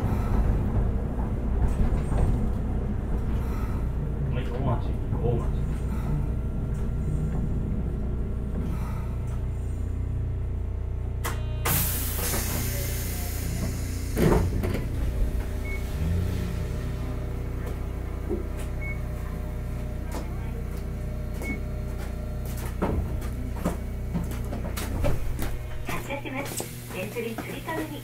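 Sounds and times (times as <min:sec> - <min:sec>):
tram motor hum and tones: 0:00.0 - 0:28.0
air hiss: 0:11.7 - 0:14.2
loud clunk: 0:13.6 - 0:15.6.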